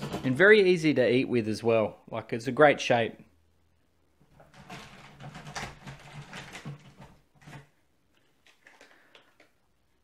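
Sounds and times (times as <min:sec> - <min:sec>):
plastic wrappers crinkling: 0:04.4 - 0:09.6.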